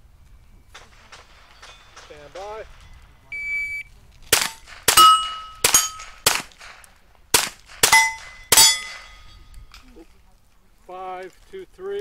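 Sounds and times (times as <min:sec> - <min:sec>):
rifle shots: 0:00.7 - 0:03.3, 0:04.3 - 0:09.3
steel plate ringing: 0:04.9 - 0:06.2, 0:07.8 - 0:09.5.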